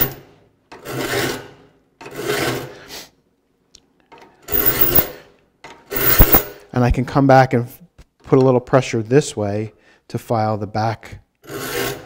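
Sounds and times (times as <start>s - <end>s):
file rasping on saw teeth: 11.4s - 12.0s.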